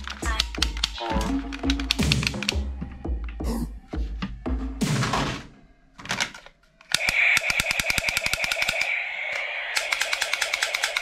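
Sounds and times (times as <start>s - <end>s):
toy gun rapid-fire rattle: 6.9s - 11.0s.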